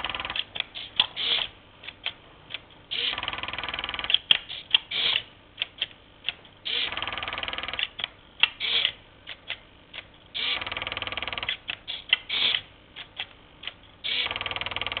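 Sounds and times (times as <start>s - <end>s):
short mechanical clicks: 0.0s - 5.9s, 6.6s - 15.0s
motor and servos whirring: 0.8s - 1.5s, 14.1s - 14.4s.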